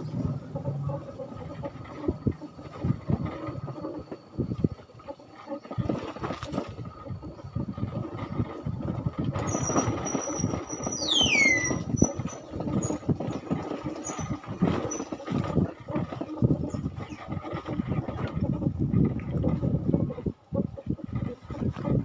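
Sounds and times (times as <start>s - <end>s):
vehicle rumbling on dirt lane: 0.0s - 4.8s
high squeal sliding down: 9.5s - 12.2s.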